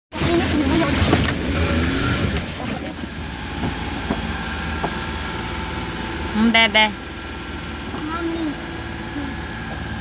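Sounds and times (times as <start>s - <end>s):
vehicle engine running: 0.1s - 10.0s
vehicle body knocks and rattles: 2.3s - 5.2s.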